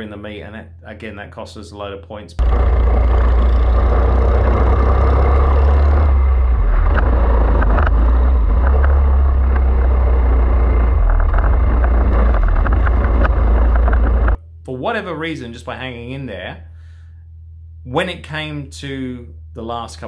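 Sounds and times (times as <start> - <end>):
kart engine rumble: 2.4 - 14.4.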